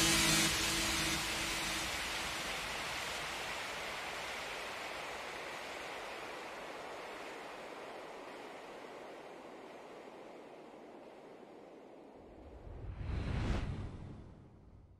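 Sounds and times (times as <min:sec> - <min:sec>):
water rushing: 0:00.0 - 0:11.5.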